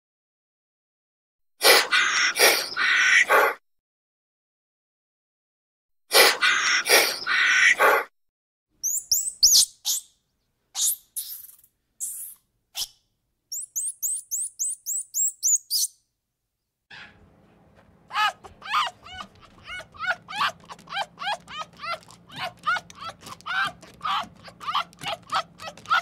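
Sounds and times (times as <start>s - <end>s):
monkey harsh call: 1.6s - 3.6s, 6.1s - 8.1s, 18.1s - 26.0s
monkey high-pitched chirps: 8.8s - 10.2s, 10.8s - 16.0s.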